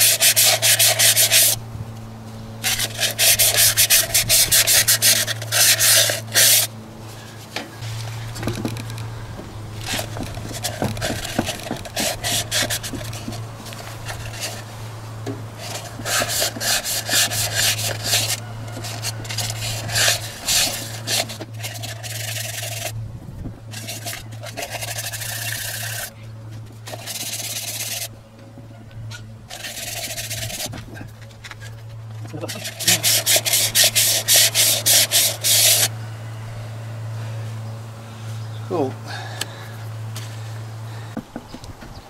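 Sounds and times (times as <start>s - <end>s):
sandpaper rubbing on metal: 0.0s - 1.6s, 2.6s - 6.7s, 9.8s - 14.7s, 15.6s - 23.0s, 23.7s - 26.1s, 26.8s - 28.1s, 29.5s - 30.9s, 31.6s - 35.9s.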